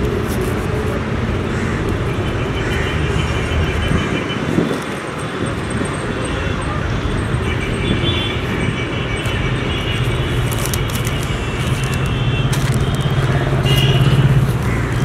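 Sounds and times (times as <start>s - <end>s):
traffic noise: 0.0s - 15.0s
vehicle engine humming: 9.2s - 15.0s.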